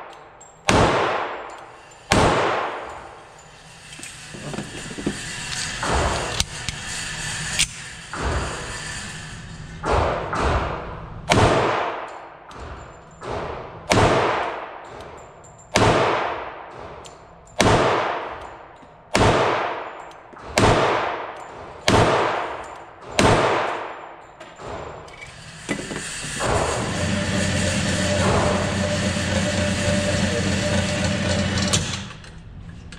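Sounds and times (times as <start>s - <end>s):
pistol shots echoing indoors: 0.0s - 3.2s, 9.8s - 25.1s
mechanical hum: 1.4s - 11.5s, 24.2s - 32.9s.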